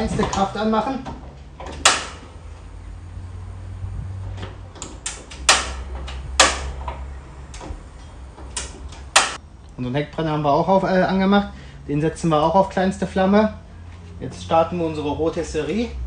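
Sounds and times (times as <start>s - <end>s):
grill control knobs turning: 0.0s - 10.4s
low burner rumble: 0.0s - 16.0s
sharp ignition clicks: 1.3s - 2.3s, 4.3s - 9.8s.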